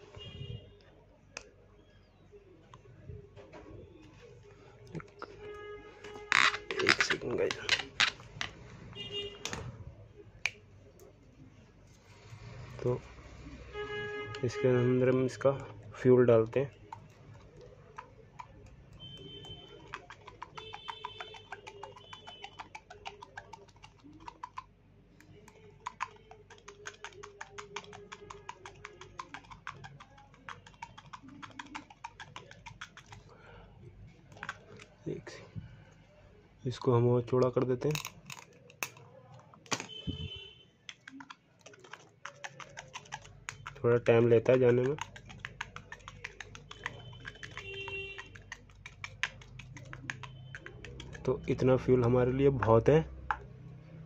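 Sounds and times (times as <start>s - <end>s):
rapid irregular clicking: 16.4s - 24.7s, 25.3s - 33.3s, 40.9s - 51.7s.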